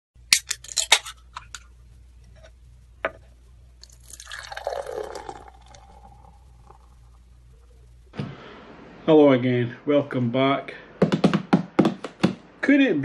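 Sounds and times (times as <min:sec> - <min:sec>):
liquid pouring into a glass: 0:03.8 - 0:07.2.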